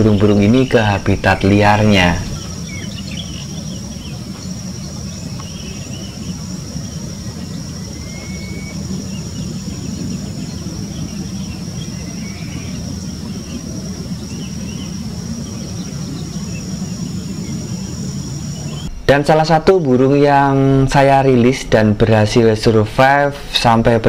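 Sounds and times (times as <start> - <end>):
faint bird chirps: 0.0 - 18.9
high-pitched insect drone: 0.0 - 18.9
low rumble: 0.0 - 23.2.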